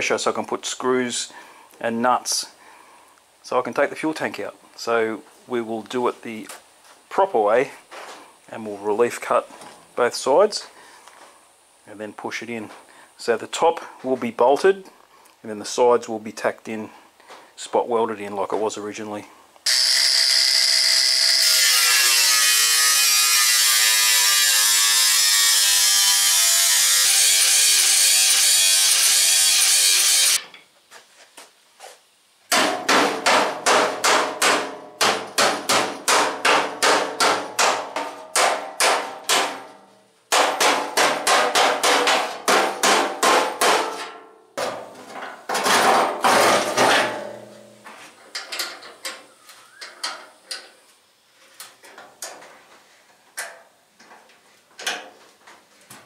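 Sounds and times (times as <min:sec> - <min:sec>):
angle grinder cutting steel: 0:19.7 - 0:30.4
hammer blows on sheet steel: 0:32.5 - 0:44.2.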